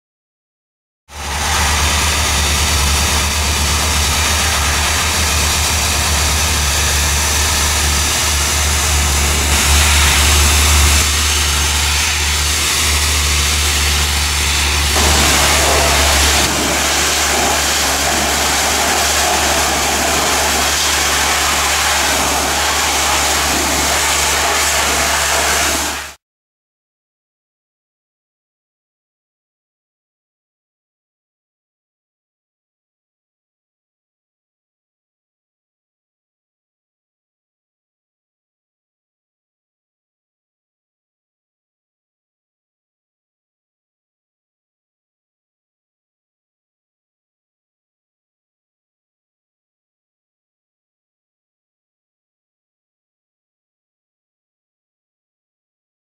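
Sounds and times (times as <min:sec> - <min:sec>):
machine low hum: 0:01.2 - 0:25.7
pressure washer spray hissing on metal: 0:01.2 - 0:26.2.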